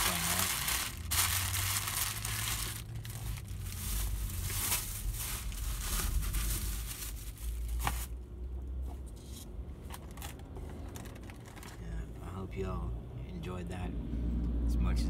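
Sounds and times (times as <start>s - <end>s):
paper wrapper rustling: 0.0s - 8.2s.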